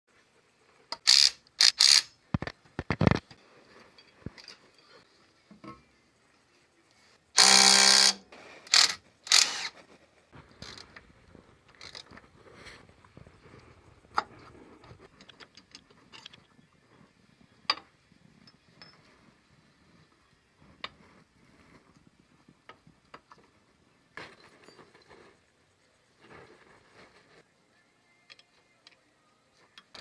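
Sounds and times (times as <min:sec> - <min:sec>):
metal tools clinking: 0:18.4 - 0:19.1.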